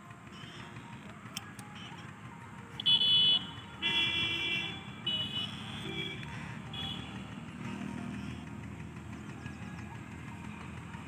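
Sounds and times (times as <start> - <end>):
outdoor background noise: 0.0 - 11.0
horn tooting: 2.8 - 7.4.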